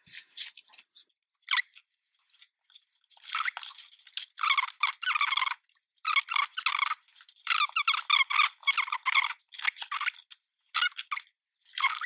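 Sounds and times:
paper rustling: 0.0s - 0.9s.

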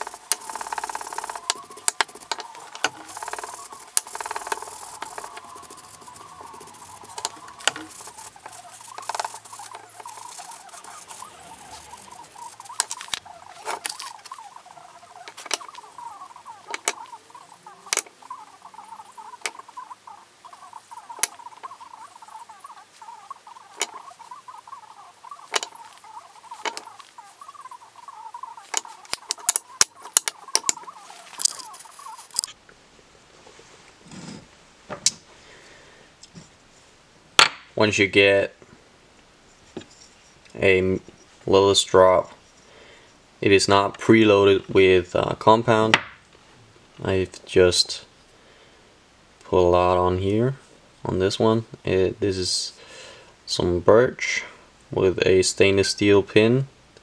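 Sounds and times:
cloth scrubbing wooden blocks: 0.0s - 32.5s
wooden blocks clicking: 0.0s - 32.6s.

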